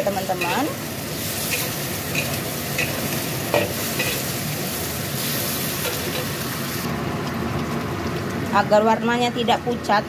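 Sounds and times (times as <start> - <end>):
food sizzling in a wok: 0.0 - 9.9.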